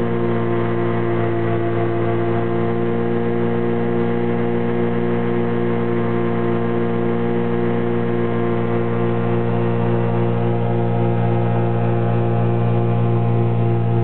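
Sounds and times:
aircraft engine drone: 0.0 - 14.0.

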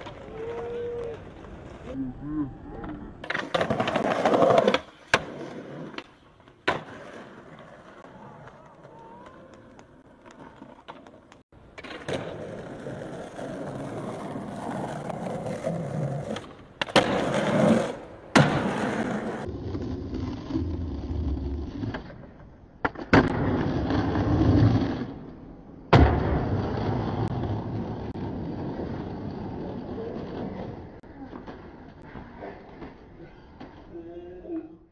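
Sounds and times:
skateboard wheels rolling on pavement: 0.0 - 2.0, 2.8 - 33.9
skateboard clacking on ground: 2.8 - 19.5.

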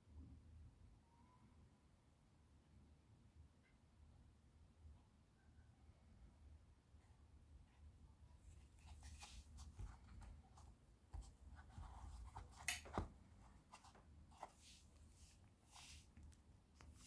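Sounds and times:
hand rubbing and rustling: 8.4 - 17.0.

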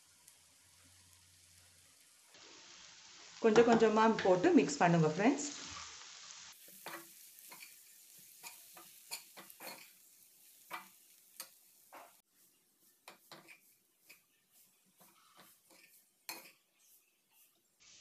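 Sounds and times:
faint frying hiss: 0.0 - 18.0
ladle scraping and tapping pan: 8.4 - 10.0, 13.0 - 14.3, 14.9 - 16.6.

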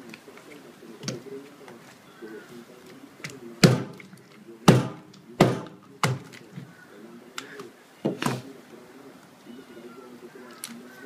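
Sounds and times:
knife chopping on wooden board: 3.6 - 4.1, 4.7 - 6.3.

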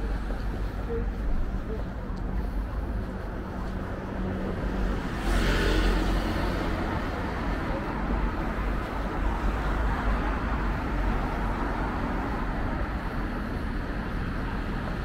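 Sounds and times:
cars passing on street: 0.0 - 15.0.

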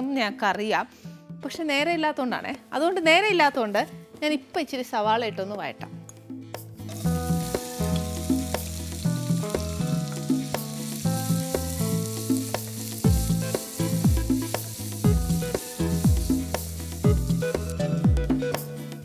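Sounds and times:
background music: 0.0 - 19.0
onions sizzling in oil: 6.9 - 17.9.

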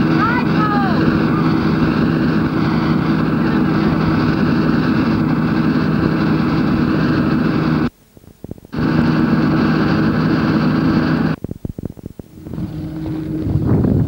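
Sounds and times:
diesel truck engine idling: 0.0 - 7.9.

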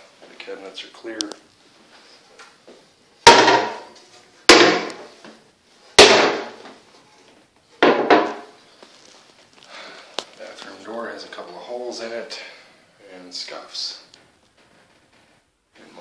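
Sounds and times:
cabinet doors knocking shut: 7.8 - 8.5.

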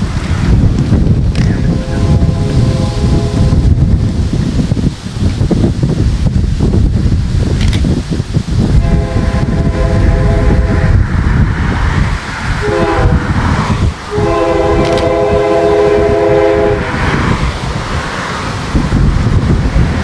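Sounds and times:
low rumble of locomotive: 0.0 - 20.0
locomotive air horn blasts: 1.7 - 3.7, 8.8 - 11.0, 12.6 - 13.4, 14.1 - 17.0.

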